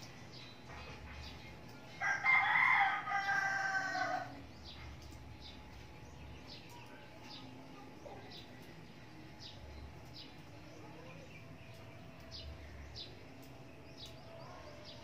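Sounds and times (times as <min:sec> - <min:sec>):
rooster crowing: 0:02.0 - 0:04.4.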